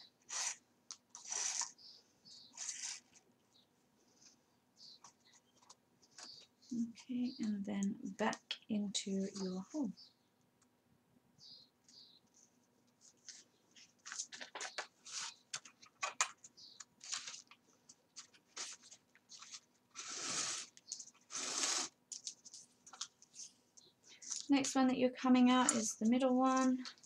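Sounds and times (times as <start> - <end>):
paper rustling and scraping: 0.2 - 1.8, 2.5 - 3.3, 13.0 - 16.4, 17.0 - 23.6
thread drawn through paper: 1.2 - 1.8, 2.5 - 3.2.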